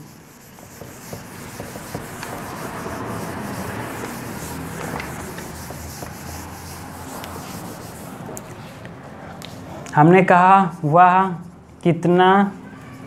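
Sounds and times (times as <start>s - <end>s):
eraser scrubbing whiteboard: 0.0s - 8.9s.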